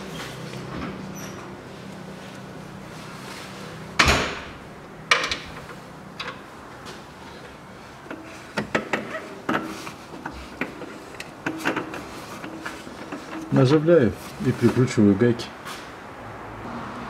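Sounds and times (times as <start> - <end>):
metal fan clunks: 4.0 - 6.5.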